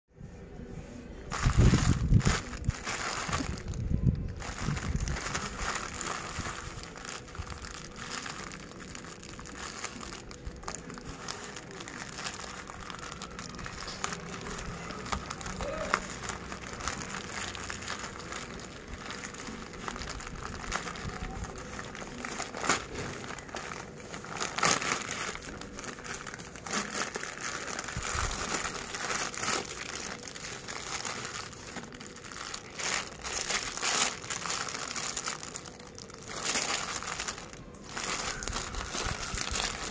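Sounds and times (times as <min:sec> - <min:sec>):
cellophane wrapper crinkling: 0:01.2 - 0:39.9
plastic mailer bag crinkling: 0:01.2 - 0:39.9.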